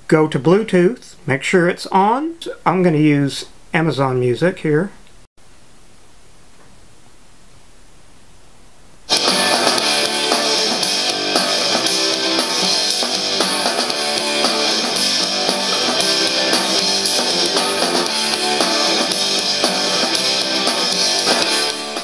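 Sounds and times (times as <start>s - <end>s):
rock music through speaker: 9.1s - 22.0s.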